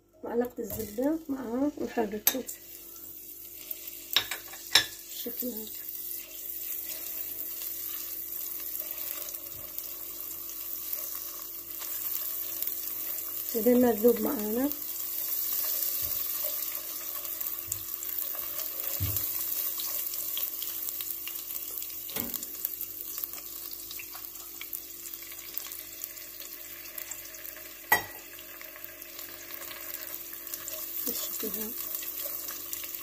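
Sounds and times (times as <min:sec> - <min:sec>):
butter sizzling and bubbling: 0:00.0 - 0:33.0
spatula stirring: 0:05.8 - 0:13.5.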